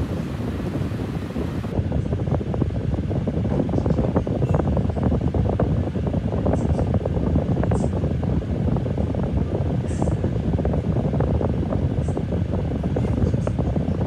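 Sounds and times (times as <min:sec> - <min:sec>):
rushing air noise: 0:00.0 - 0:01.9
air buffeting microphone: 0:00.0 - 0:14.0.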